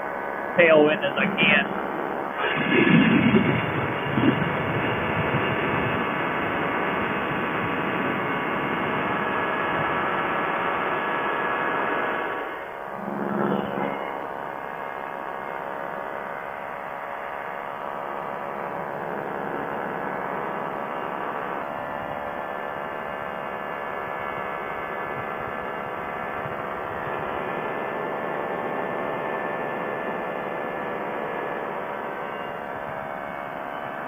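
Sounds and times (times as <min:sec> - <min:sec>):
ultralight engine and propeller droning: 0:00.0 - 0:34.0
wind rushing: 0:02.4 - 0:06.1.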